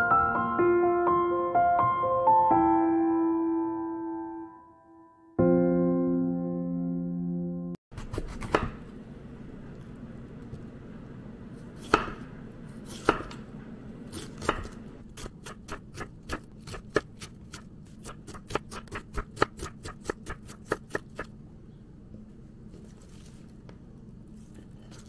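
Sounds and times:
knife chopping cabbage on board: 7.9 - 8.9, 11.8 - 13.4, 14.1 - 21.3
knife slicing strokes: 8.0 - 8.8, 11.6 - 13.4, 14.0 - 21.3.

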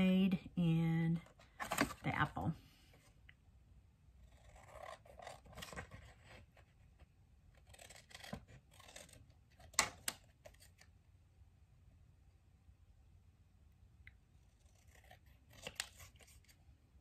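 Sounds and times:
scissors snipping paper: 4.2 - 6.0, 7.6 - 10.8, 14.6 - 16.6.

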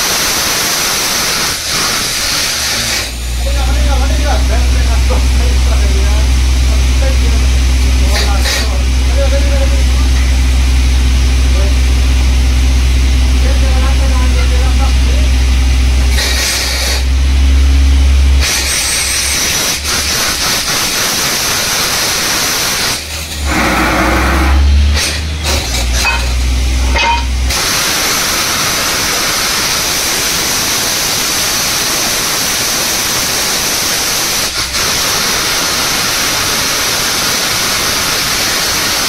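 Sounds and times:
low engine drone: 3.2 - 8.2, 8.8 - 16.2, 23.0 - 27.8
rushing air and water: 21.4 - 24.8.

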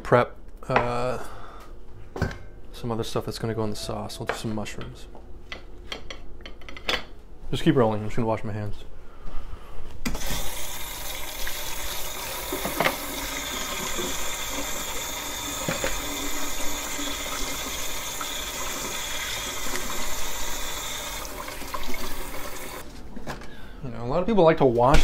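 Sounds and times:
tap running into sink: 11.4 - 22.8.

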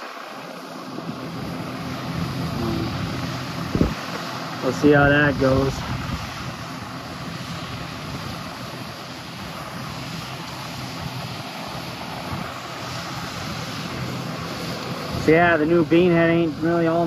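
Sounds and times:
combine harvester droning: 0.0 - 17.0.

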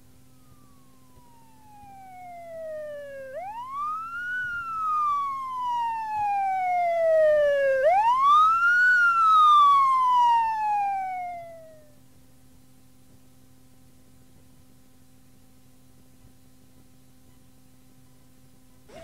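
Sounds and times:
police siren wailing: 0.3 - 12.0.

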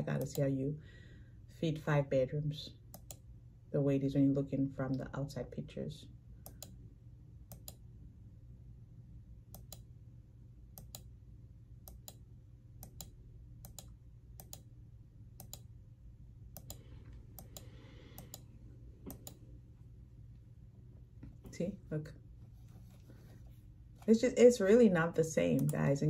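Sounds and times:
low steady hum: 0.0 - 26.0
computer mouse clicks: 0.2 - 0.5, 2.9 - 3.2, 6.4 - 6.8, 7.5 - 7.8, 9.5 - 9.9, 10.7 - 11.1, 11.8 - 12.2, 12.8 - 14.7, 15.4 - 15.7, 16.5 - 19.4, 25.5 - 25.8.

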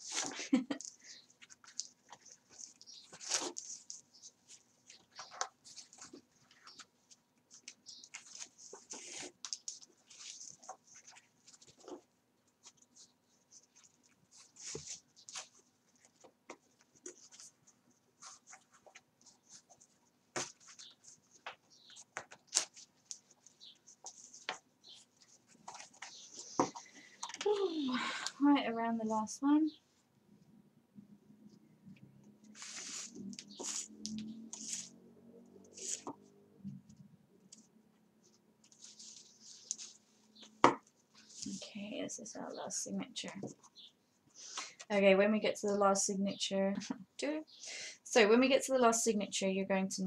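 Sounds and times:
paper pages handling noise: 0.0 - 27.8, 32.4 - 35.0, 35.6 - 41.7.

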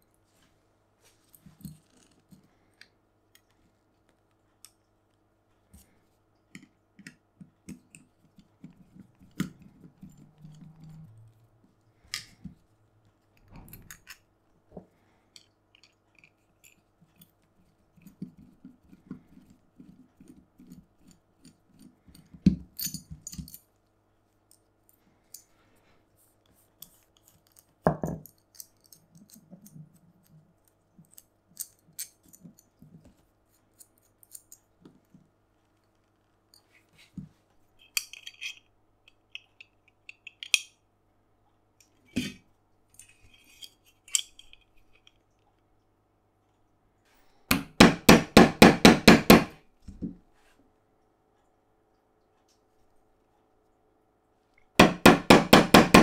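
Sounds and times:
faint steady hum: 0.0 - 56.0
tools clicking and clinking: 20.2 - 23.7, 37.8 - 40.8, 43.0 - 45.2
loud knocks: 54.8 - 56.0.

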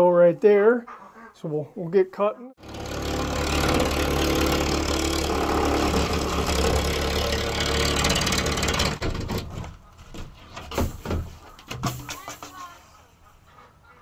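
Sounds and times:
electric power saw cutting wood: 2.6 - 9.0.

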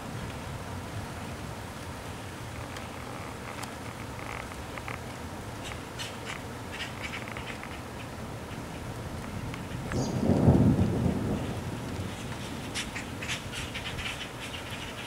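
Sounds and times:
thunder rumbling: 8.9 - 15.0.

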